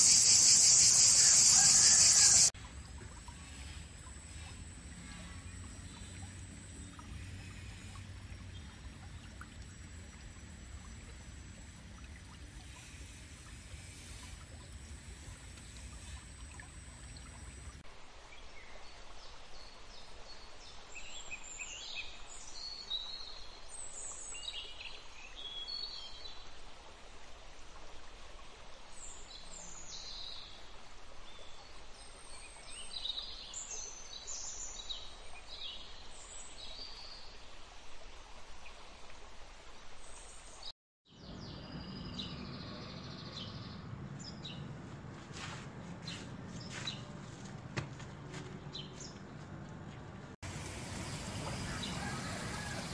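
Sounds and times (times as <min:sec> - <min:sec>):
bird chirps and calls: 0:00.0 - 0:02.5
steady background hiss: 0:00.0 - 0:18.8, 0:50.1 - 0:52.9.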